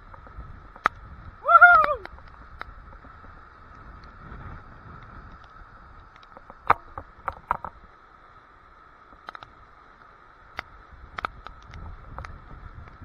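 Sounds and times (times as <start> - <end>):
rapids rushing over rocks: 0.0 - 13.0
sharp ticks near microphone: 9.1 - 13.0.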